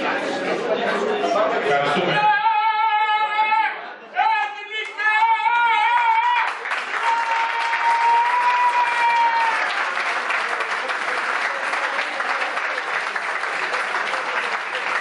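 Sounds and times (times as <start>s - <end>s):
people applauding: 4.8s - 15.0s.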